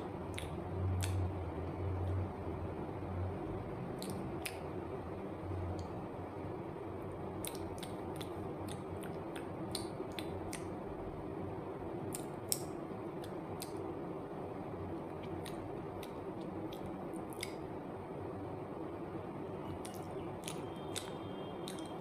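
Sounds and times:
low background hum: 0:00.0 - 0:22.0
wet mouth chewing clicks: 0:00.3 - 0:01.3, 0:04.0 - 0:04.7, 0:07.4 - 0:10.8, 0:12.1 - 0:13.8, 0:15.2 - 0:17.7, 0:19.7 - 0:22.0.

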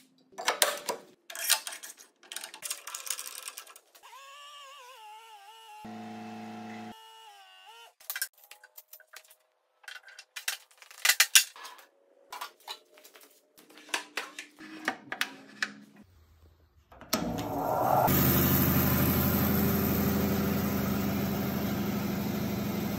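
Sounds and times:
bandsaw motor humming: 0:04.0 - 0:08.0, 0:17.2 - 0:22.9.

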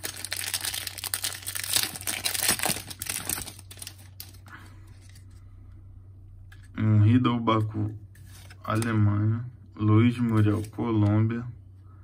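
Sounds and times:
foil wrapper crinkling: 0:00.0 - 0:04.4.

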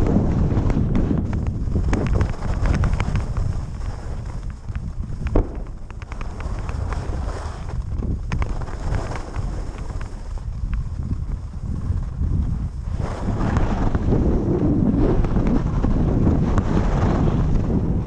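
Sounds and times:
skis scraping on snow: 0:00.0 - 0:18.0
wind buffeting microphone: 0:00.0 - 0:18.0.

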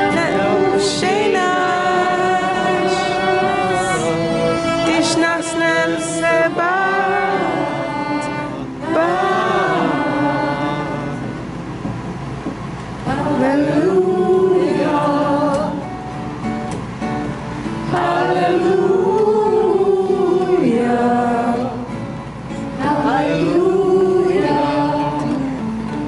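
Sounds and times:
woman singing: 0:00.0 - 0:04.1, 0:04.8 - 0:11.2, 0:22.8 - 0:25.9
acoustic guitars strummed: 0:00.0 - 0:26.0.

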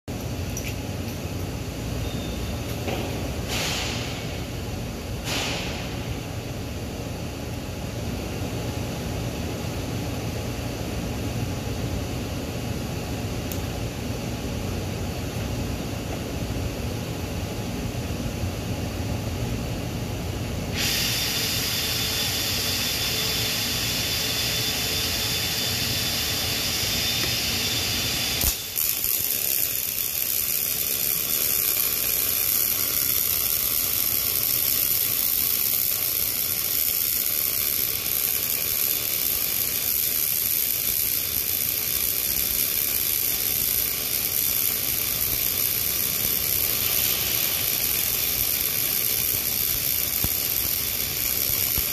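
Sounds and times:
welding arc: 0:20.8 - 0:51.9
sharp click: 0:28.4 - 0:28.7.

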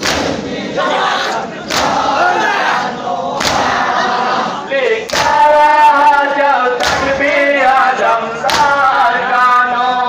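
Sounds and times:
crowd of men chanting: 0:00.0 - 0:10.0.

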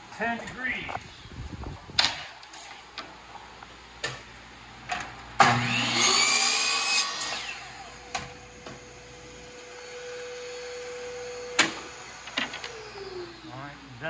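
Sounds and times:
miter saw motor spinning: 0:09.8 - 0:13.5.

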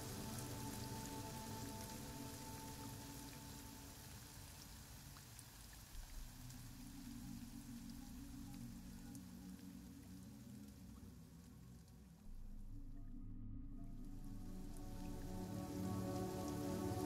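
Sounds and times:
rain patter: 0:00.0 - 0:13.2, 0:13.8 - 0:17.0
low drone: 0:06.0 - 0:11.4, 0:12.1 - 0:17.0.

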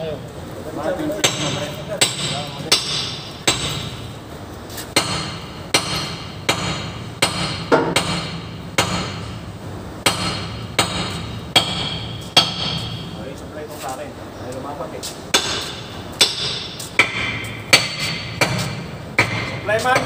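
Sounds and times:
steady low hum: 0:00.0 - 0:20.0
hammer striking steel: 0:01.2 - 0:04.1, 0:04.9 - 0:09.4, 0:10.0 - 0:13.2, 0:15.3 - 0:20.0.

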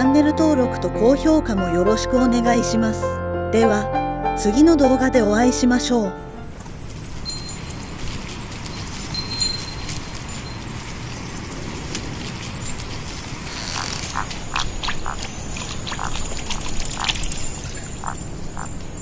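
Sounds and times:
frogs croaking: 0:06.5 - 0:19.0
small high chirps: 0:06.6 - 0:19.0.

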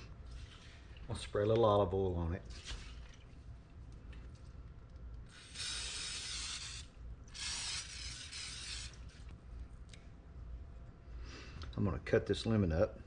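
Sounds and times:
cooking spray can hissing: 0:05.3 - 0:09.1.

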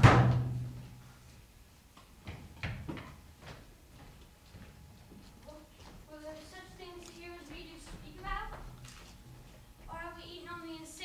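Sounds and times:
heavy thump with low boom: 0:00.0 - 0:00.7.

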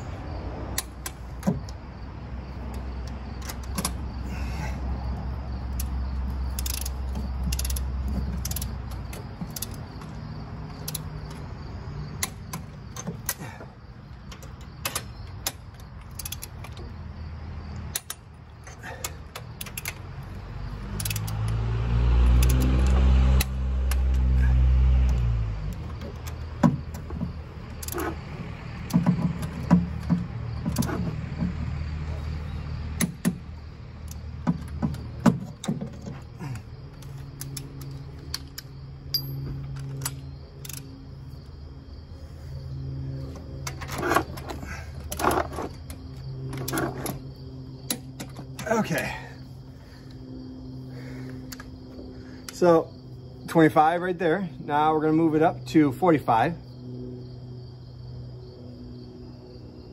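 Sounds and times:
sharp metallic clicks: 0:00.7 - 0:04.2, 0:05.2 - 0:11.5, 0:12.1 - 0:13.4, 0:14.1 - 0:17.1, 0:17.7 - 0:31.5, 0:32.9 - 0:41.1, 0:43.2 - 0:49.1, 0:51.3 - 0:52.8
torque wrench ratcheting: 0:05.7 - 0:10.0, 0:14.9 - 0:16.7, 0:20.8 - 0:21.6.

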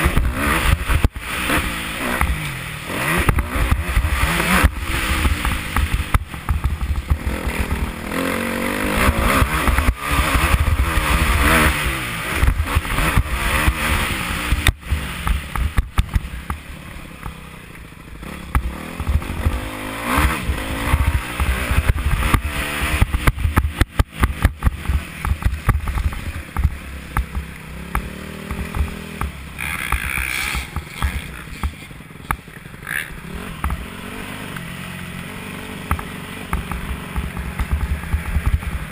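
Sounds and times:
dirt bike engine revving: 0:00.0 - 0:38.9.

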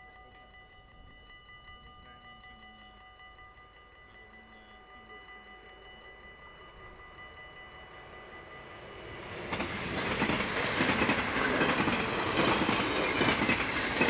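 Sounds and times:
level-crossing bell ringing: 0:00.0 - 0:14.0
train wheels rumbling on rails: 0:08.4 - 0:14.0.

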